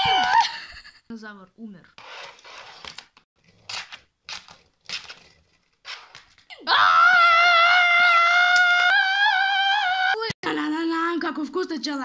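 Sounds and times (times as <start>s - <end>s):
child screaming high-pitched: 0.0s - 0.5s, 6.5s - 10.3s.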